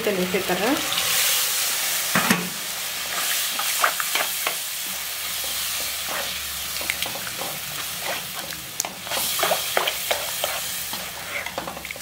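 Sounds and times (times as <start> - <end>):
curry sizzling in a pan: 0.0 - 12.0
metal spatula scraping pan: 0.2 - 4.5.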